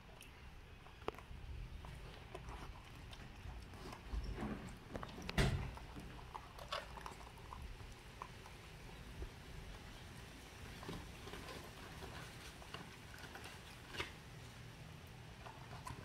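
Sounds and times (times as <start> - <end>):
monkeys eating with clicks and taps: 0.0 - 16.0
thump: 5.4 - 5.7.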